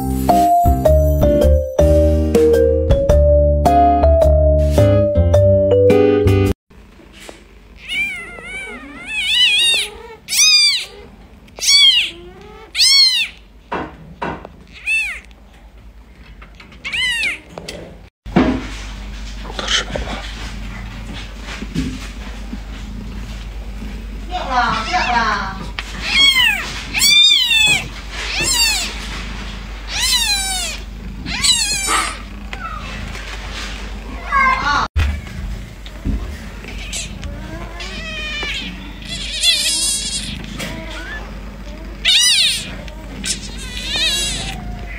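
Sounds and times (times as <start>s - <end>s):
kitten mewing: 7.8s - 13.5s, 14.7s - 15.3s, 16.8s - 17.6s, 26.0s - 29.0s, 29.9s - 33.1s, 36.6s - 44.9s.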